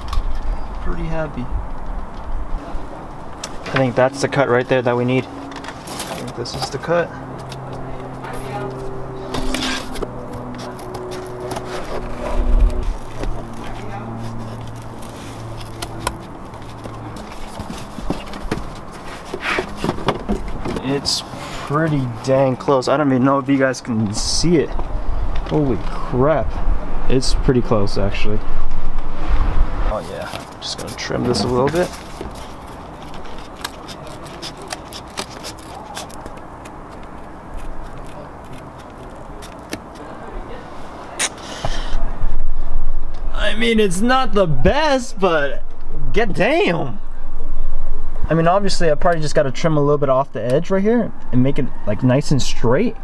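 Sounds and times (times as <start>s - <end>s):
low steady hum: 0.0s - 22.5s, 42.0s - 53.0s.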